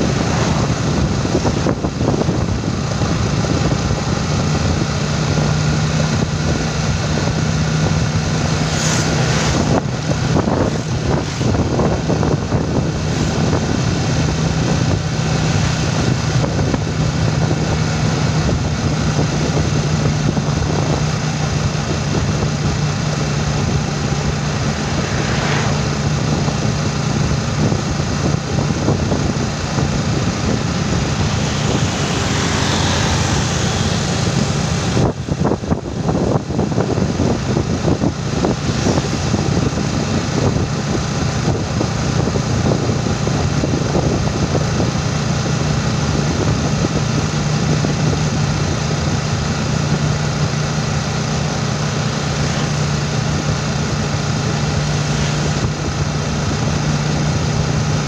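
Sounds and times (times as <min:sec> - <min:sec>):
vehicle passing: 0:00.0 - 0:02.1, 0:07.8 - 0:12.1, 0:22.3 - 0:27.8, 0:30.4 - 0:35.5
motorcycle engine running: 0:00.0 - 0:58.0
rough wind buffeting: 0:00.0 - 0:58.0
wind and tyre noise: 0:00.0 - 0:58.0.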